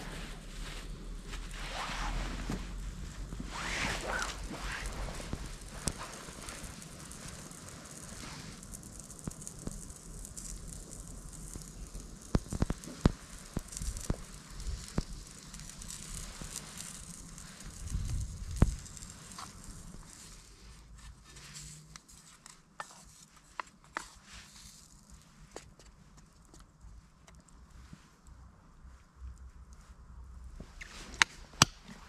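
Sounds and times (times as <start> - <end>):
food sizzling in a pan: 1.3 - 24.8.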